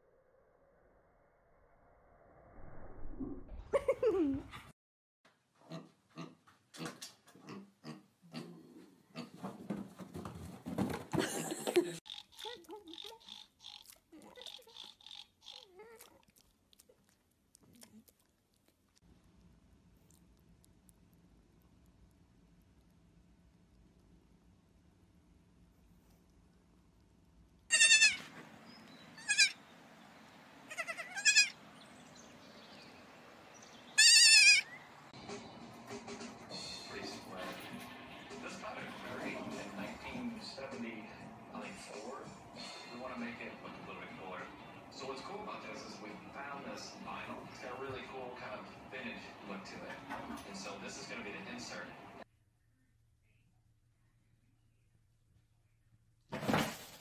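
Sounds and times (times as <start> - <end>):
small animal grunting: 5.6 - 9.4
baby goats bleating: 27.7 - 28.3, 29.2 - 29.6, 30.7 - 31.6, 34.0 - 34.7.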